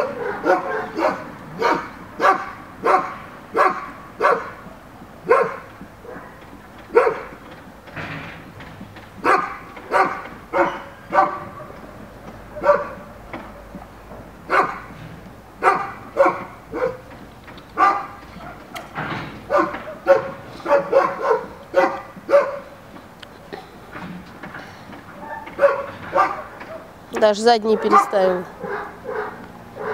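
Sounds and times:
dog barking: 0:00.0 - 0:07.4, 0:09.2 - 0:11.9, 0:12.5 - 0:13.8, 0:14.5 - 0:14.9, 0:15.6 - 0:17.1, 0:17.8 - 0:18.8, 0:19.5 - 0:22.7, 0:25.2 - 0:26.9, 0:27.7 - 0:29.9.

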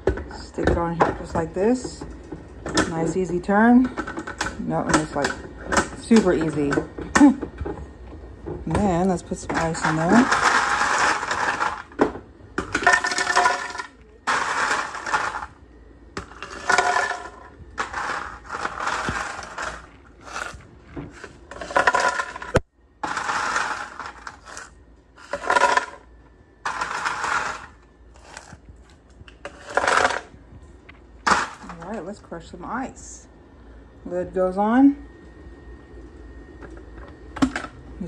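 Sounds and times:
ice cubes clattering into plastic: 0:09.6 - 0:12.0, 0:12.6 - 0:15.5, 0:16.2 - 0:20.6, 0:21.2 - 0:26.0, 0:26.7 - 0:28.6, 0:29.5 - 0:30.3, 0:31.3 - 0:31.8.

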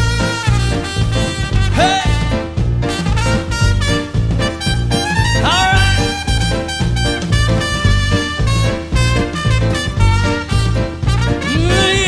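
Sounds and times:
swing band playing: 0:00.0 - 0:12.0.

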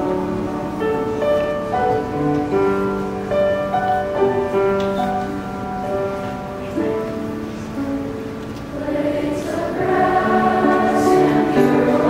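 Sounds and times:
piano accompaniment: 0:00.0 - 0:12.0
choir singing: 0:08.6 - 0:12.0.

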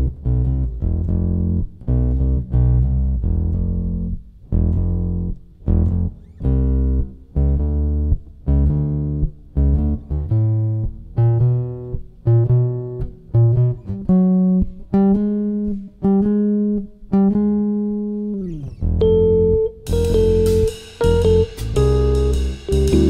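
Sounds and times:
low bass notes: 0:00.0 - 0:16.6, 0:18.3 - 0:23.0
plucked guitar notes: 0:00.0 - 0:23.0.

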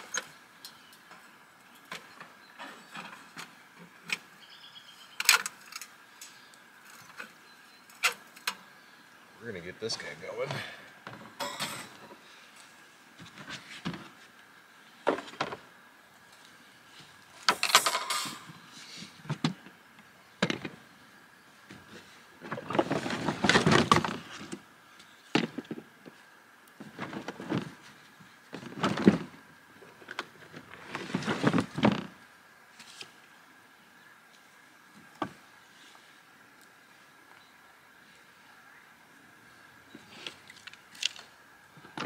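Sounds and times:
firewood knocking and clattering: 0:20.4 - 0:20.8, 0:25.3 - 0:26.2
plastic tote rustling: 0:22.4 - 0:24.6, 0:26.8 - 0:29.4, 0:30.0 - 0:32.2.

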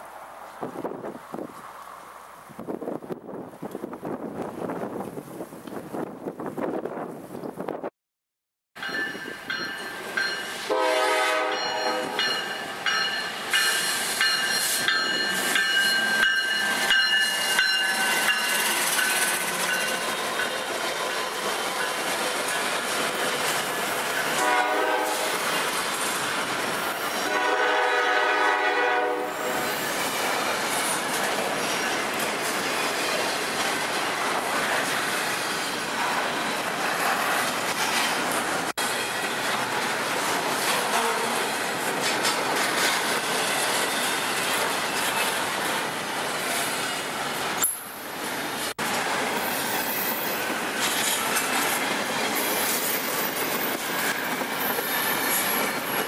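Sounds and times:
freight train rolling past: 0:08.8 - 0:56.0
locomotive air horn blasts: 0:10.6 - 0:12.3, 0:24.4 - 0:25.4, 0:27.2 - 0:29.5, 0:40.9 - 0:41.4
high wheel squeal: 0:29.3 - 0:31.0, 0:52.4 - 0:56.0
train wheels clicking over rail joints: 0:29.4 - 0:45.8, 0:48.8 - 0:56.0.

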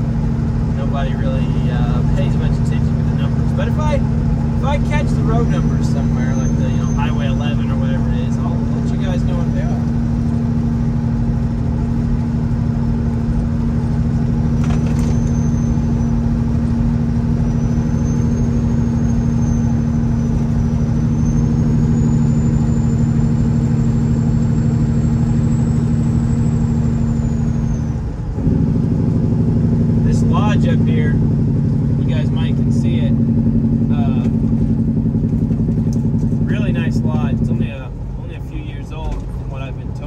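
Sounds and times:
truck engine running: 0:00.0 - 0:40.0.

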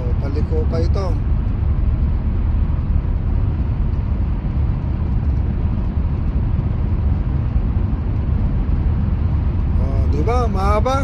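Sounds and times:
car engine rumble: 0:00.0 - 0:11.0
wind noise: 0:00.0 - 0:11.0.

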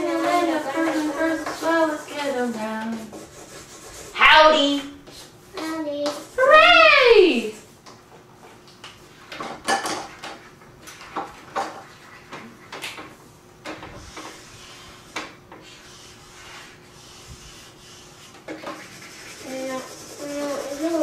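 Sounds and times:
markers scribbling on paper: 0:00.0 - 0:06.4, 0:14.0 - 0:21.0.

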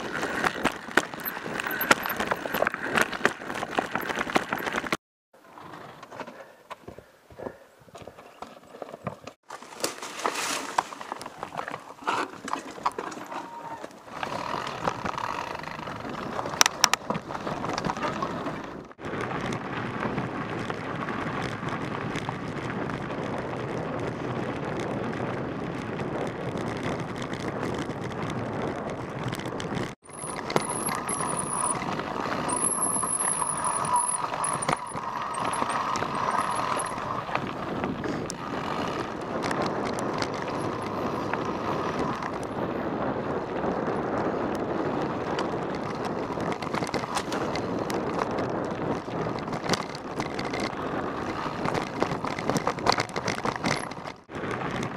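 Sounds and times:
bikes rattling: 0:00.0 - 0:06.6, 0:07.4 - 0:54.9
tyres crunching on gravel: 0:26.4 - 0:42.4.

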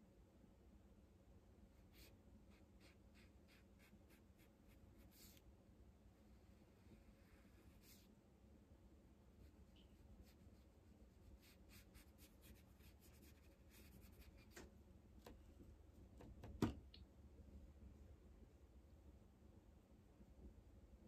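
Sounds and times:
paintbrush scratching on paper: 0:01.8 - 0:05.4, 0:06.7 - 0:08.1, 0:09.4 - 0:14.6
brush tapping in paint palette: 0:16.1 - 0:17.0.

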